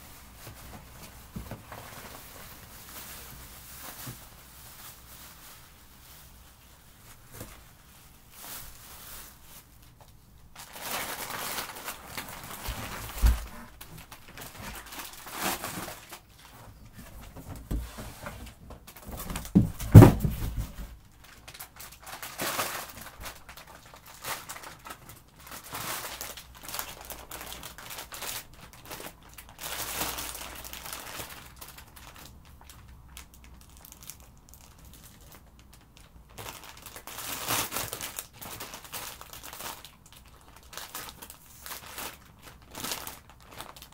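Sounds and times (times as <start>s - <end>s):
plastic bags crinkling: 0.0s - 43.9s
dull thumps: 19.1s - 21.0s.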